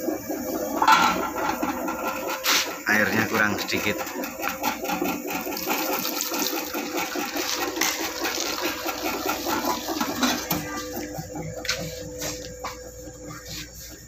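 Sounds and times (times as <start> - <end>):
dough churning and slapping: 0.0 - 14.0
mixer motor humming: 0.0 - 14.0.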